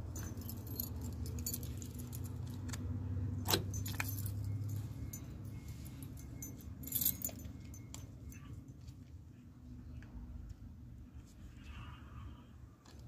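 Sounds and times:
metal valve parts clinking: 0:00.0 - 0:02.8, 0:03.4 - 0:08.5.

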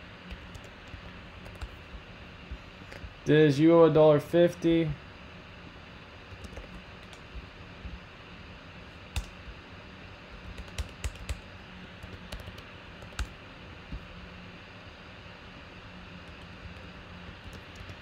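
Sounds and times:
steady low hum: 0:00.0 - 0:18.0
keyboard keystroke clicks: 0:09.1 - 0:09.4, 0:10.5 - 0:11.4.

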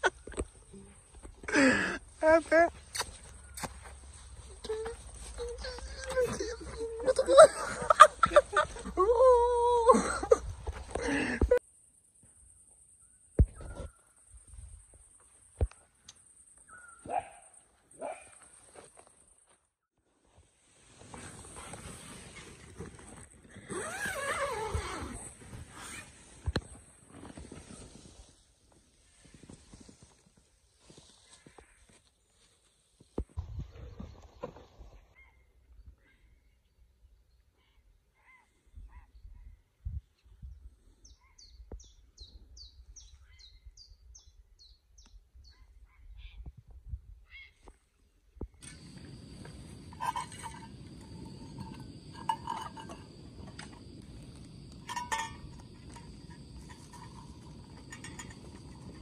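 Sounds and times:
bird chirps: 0:16.4 - 0:17.2
small bird singing: 0:40.4 - 0:45.6.

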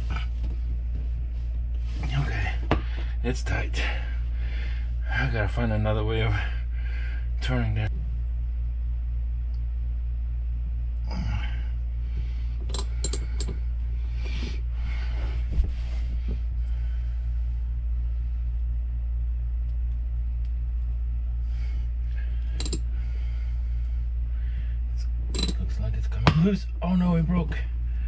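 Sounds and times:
steady low hum: 0:00.0 - 0:28.0
metal wrenches clinking and scraping: 0:22.6 - 0:22.8, 0:25.4 - 0:25.6.

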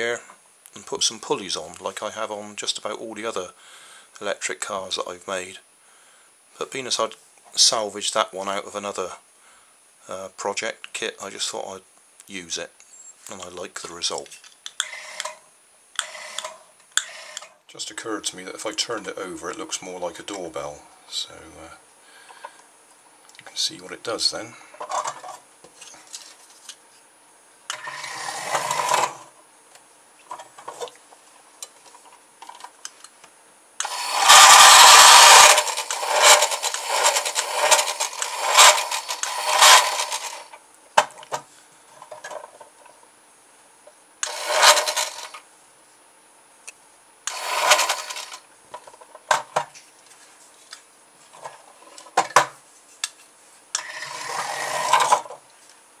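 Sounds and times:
small electric motor whirring: 0:27.7 - 0:29.3, 0:33.8 - 0:40.6, 0:44.2 - 0:45.4, 0:47.3 - 0:48.4, 0:53.8 - 0:55.3.

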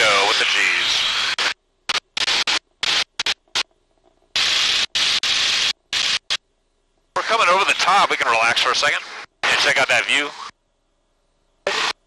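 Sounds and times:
intercom static hiss bursts: 0:00.0 - 0:06.4, 0:07.1 - 0:10.6, 0:11.6 - 0:12.0.

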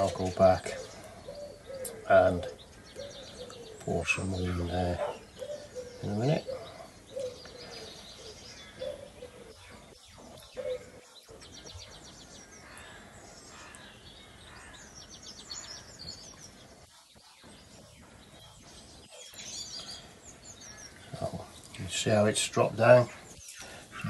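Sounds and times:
small birds chirping and trilling: 0:00.0 - 0:24.0.

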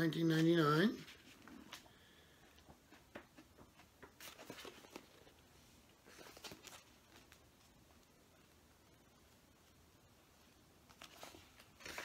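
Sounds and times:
book pages rustling: 0:00.3 - 0:01.9, 0:02.6 - 0:07.8, 0:10.8 - 0:12.0.

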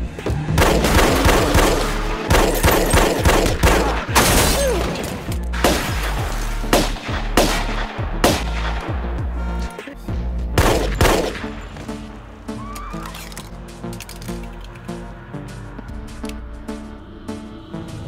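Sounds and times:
low film score music: 0:00.0 - 0:18.0
gunshots: 0:00.5 - 0:09.0, 0:10.6 - 0:11.5.

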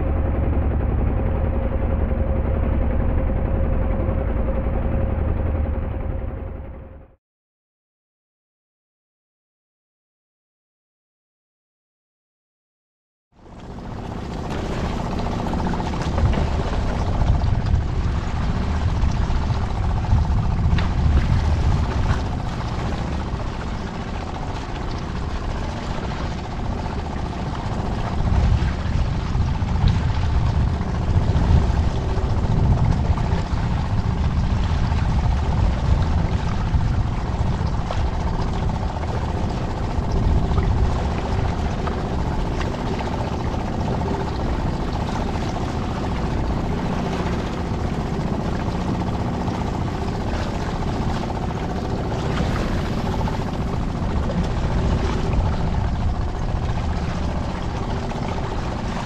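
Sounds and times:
wind rumble on microphone: 0:00.0 - 0:06.8, 0:13.4 - 0:59.0
water washing past hull: 0:13.4 - 0:59.0.

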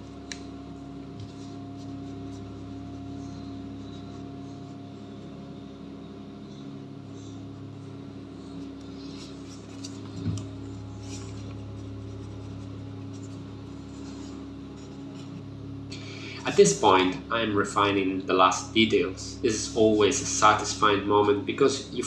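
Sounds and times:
steady low hum: 0:00.0 - 0:22.0.

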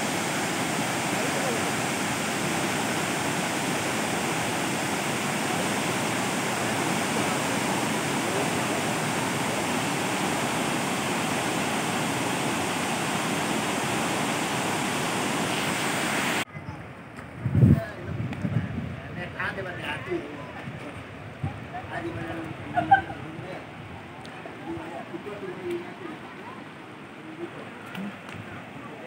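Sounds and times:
waterfall rushing: 0:00.0 - 0:16.4.

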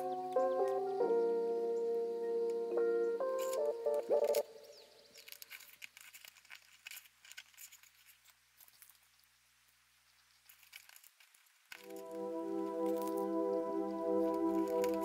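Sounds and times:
plastic bricks clicking together: 0:05.1 - 0:09.1.

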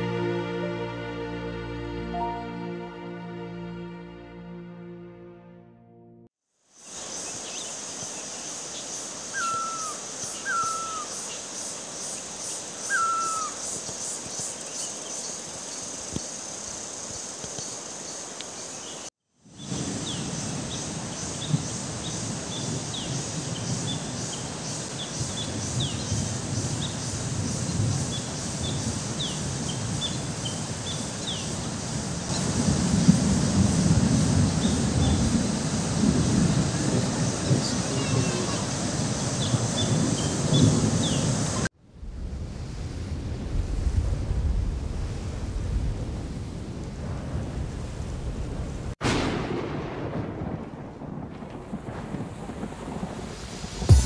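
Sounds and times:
high insect drone: 0:06.7 - 0:41.7
bird falling calls: 0:09.3 - 0:11.4, 0:12.8 - 0:14.0
wind rumbling: 0:19.6 - 0:54.0.

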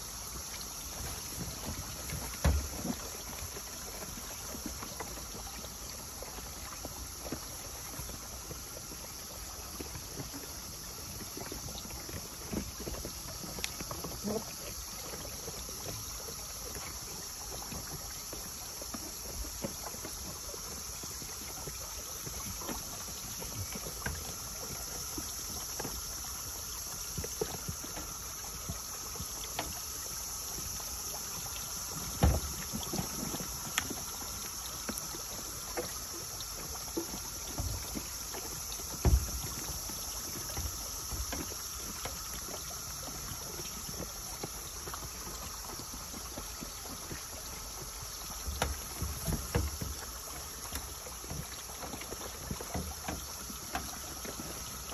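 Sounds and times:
thump: 0:02.4 - 0:02.9, 0:32.2 - 0:32.6.

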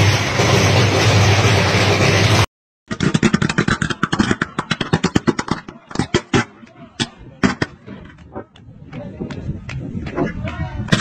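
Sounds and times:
loud rushing noise: 0:00.0 - 0:02.5.

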